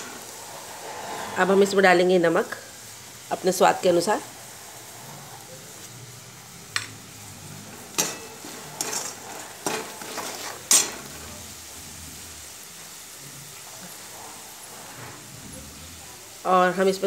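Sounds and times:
metal spatula scraping a pan: 0.0s - 2.5s, 7.4s - 16.8s
food sizzling in oil: 0.0s - 17.0s.

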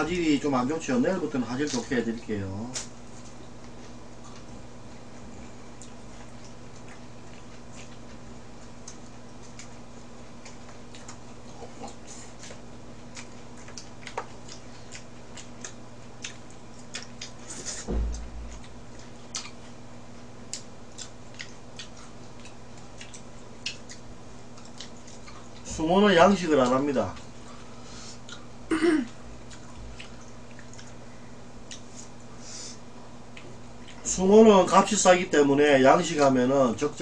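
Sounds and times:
steady low hum: 0.0s - 37.0s
low thump: 17.9s - 18.7s.

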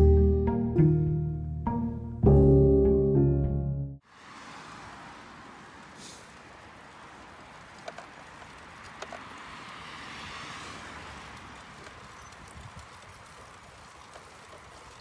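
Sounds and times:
bicycle rolling on asphalt: 4.1s - 15.0s.

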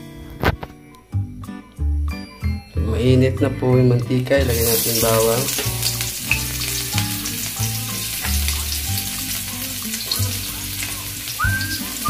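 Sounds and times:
garlic sizzling in hot oil: 4.4s - 12.0s.

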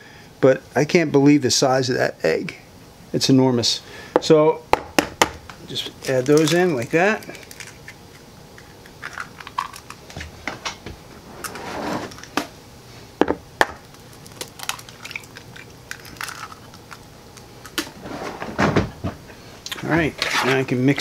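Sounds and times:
eggs cracking over plastic bowl: 5.2s - 10.3s, 13.6s - 18.0s.

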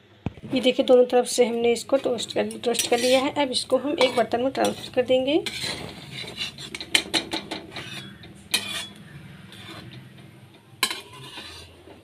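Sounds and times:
metal spatula scraping and clinking: 2.0s - 10.0s, 10.8s - 12.0s.

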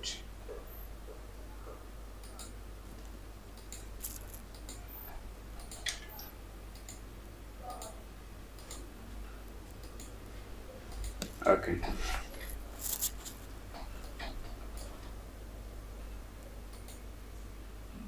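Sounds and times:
steady low hum: 0.0s - 18.0s
faint computer mouse clicks: 3.6s - 7.0s, 16.7s - 17.1s.

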